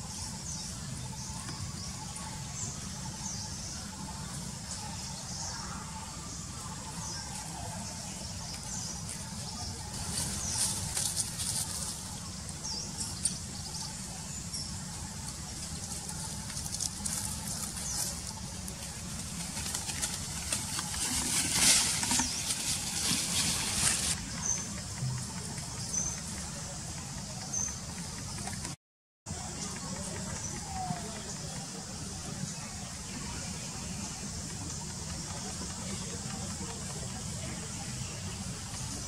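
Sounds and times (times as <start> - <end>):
dry leaves rustling and crackling: 8.5 - 13.3, 15.1 - 24.3.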